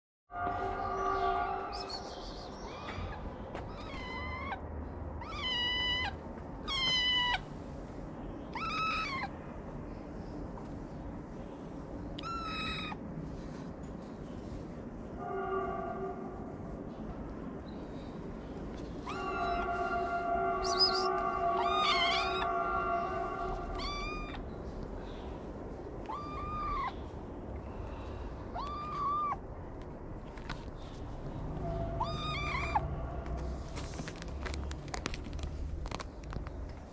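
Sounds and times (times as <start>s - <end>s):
kitten meowing: 3.7s - 4.6s, 5.2s - 7.5s, 8.5s - 9.4s, 12.2s - 13.0s, 19.0s - 19.7s, 20.6s - 22.5s, 23.4s - 24.4s, 26.0s - 27.0s, 28.5s - 29.4s, 32.0s - 32.9s.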